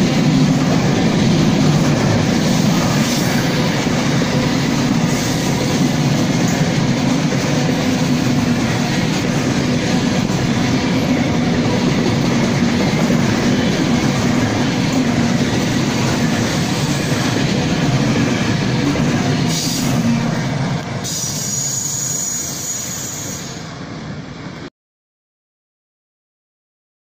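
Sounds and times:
train wheels clattering: 0.0s - 23.4s
high wheel squeal: 21.0s - 23.7s.

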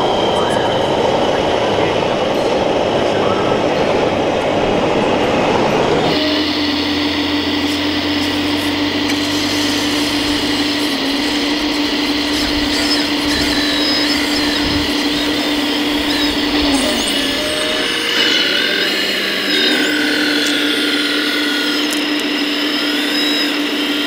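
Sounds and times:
dense hall hum: 0.0s - 22.9s
toy excavator pump whine: 6.0s - 24.0s.

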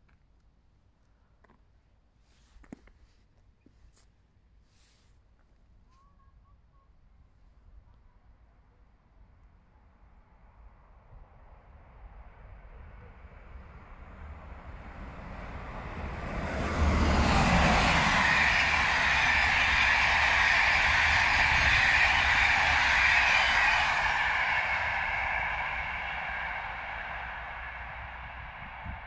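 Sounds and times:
passenger train passing: 10.0s - 29.0s.

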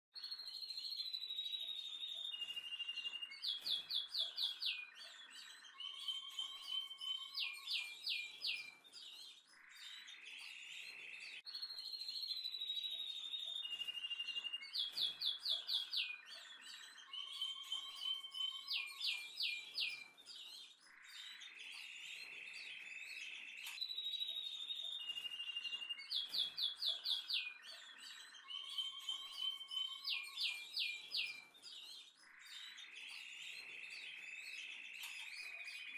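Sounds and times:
birdsong whistles and chirps: 0.2s - 35.9s.

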